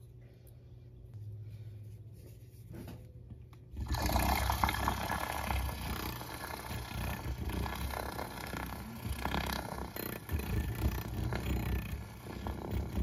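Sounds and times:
milk frother motor buzzing: 3.8 - 13.0.

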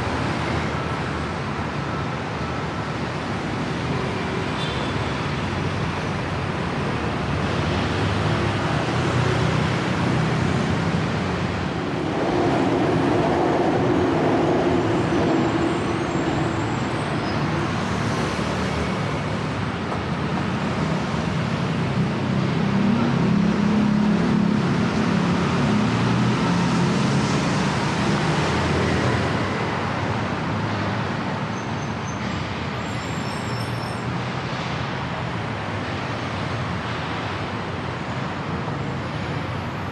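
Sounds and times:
road traffic passing: 0.0 - 39.9.

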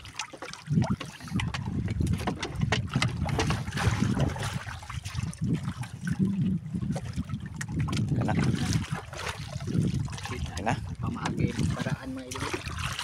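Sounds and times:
water lapping against boat hull: 0.0 - 13.0
wind rumbling on microphone: 0.6 - 13.0.

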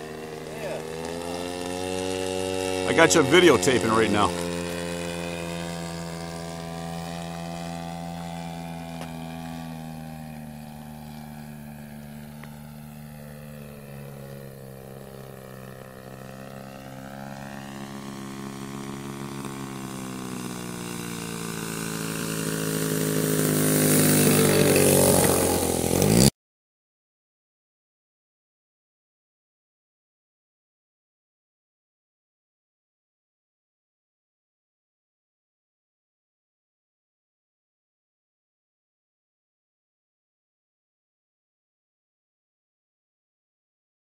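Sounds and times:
model plane engine droning: 0.0 - 26.3.

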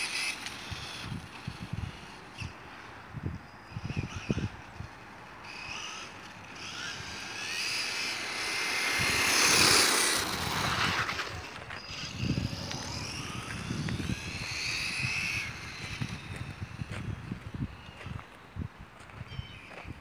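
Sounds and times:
tyre noise on pavement: 3.9 - 20.0
electric motor whining: 5.5 - 18.2.

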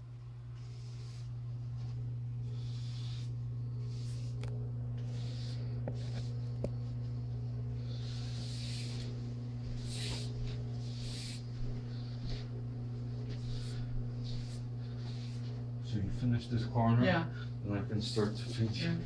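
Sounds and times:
low electrical hum: 0.0 - 19.0
paint brush swishing on wall: 0.5 - 7.2, 7.9 - 15.7.

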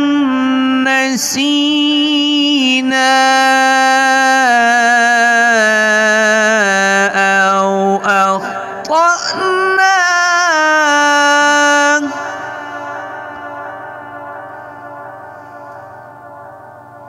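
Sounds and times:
man chanting recitation: 0.0 - 14.7.

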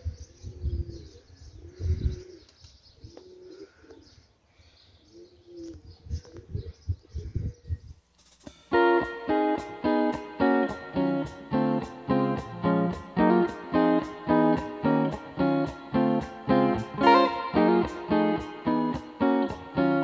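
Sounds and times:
wind rumbling on microphone: 0.0 - 2.4, 5.6 - 8.0
pigeons cooing: 0.0 - 4.3, 5.0 - 7.8
guitar music: 8.4 - 20.0.

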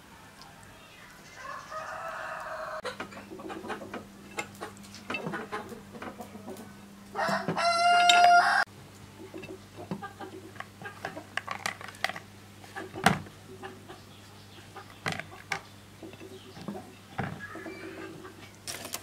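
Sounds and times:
rooster crowing: 1.3 - 3.0, 7.1 - 8.7.

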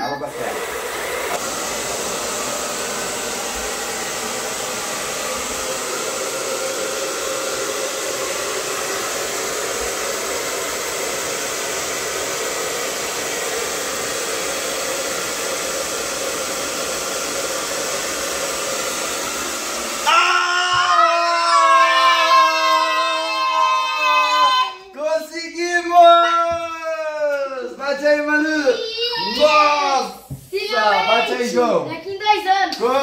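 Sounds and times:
hair dryer running: 0.1 - 31.9.

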